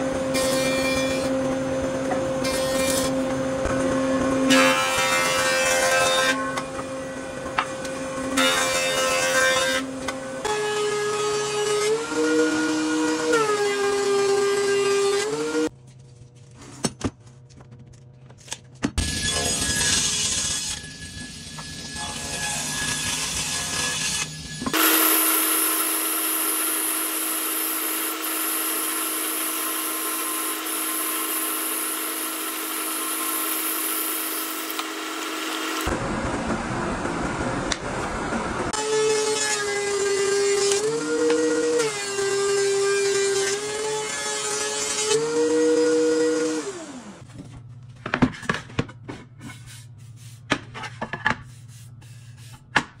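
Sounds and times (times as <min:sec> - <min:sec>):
band saw cutting wood: 0:00.0 - 0:15.7, 0:19.0 - 0:35.9.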